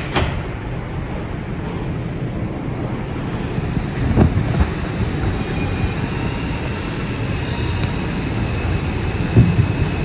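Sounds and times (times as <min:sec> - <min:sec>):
train clunk: 0:00.0 - 0:00.7
subway car rumbling: 0:00.0 - 0:10.0.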